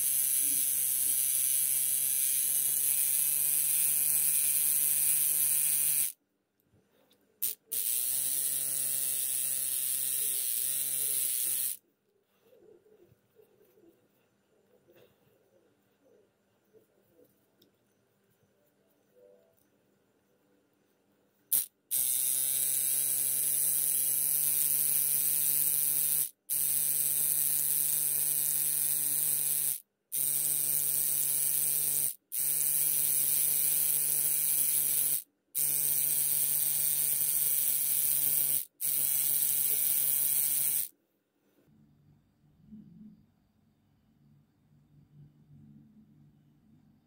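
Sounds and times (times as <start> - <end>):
tattoo machine buzzing: 0.0 - 6.2, 7.4 - 11.8, 21.5 - 40.9.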